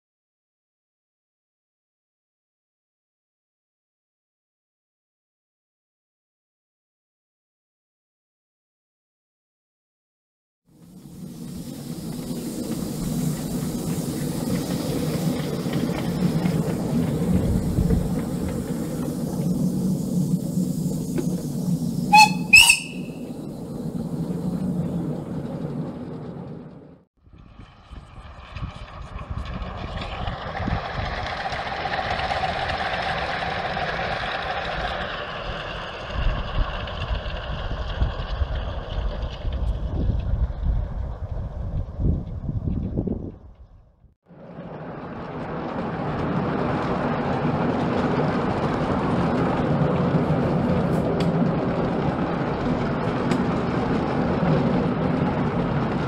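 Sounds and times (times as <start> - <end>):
wheels clicking on rails: 10.8 - 27.0, 28.6 - 42.9, 44.4 - 56.0
miniature locomotive running hum: 10.8 - 42.6, 44.4 - 56.0
wind buffeting microphone: 11.5 - 26.1, 27.2 - 44.0.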